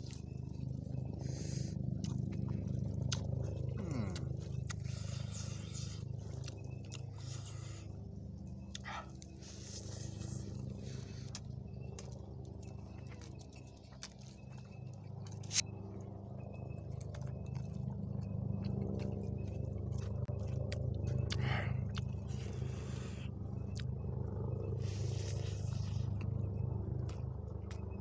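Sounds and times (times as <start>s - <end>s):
chewing: 0.0s - 28.0s
low mechanical hum: 0.0s - 28.0s.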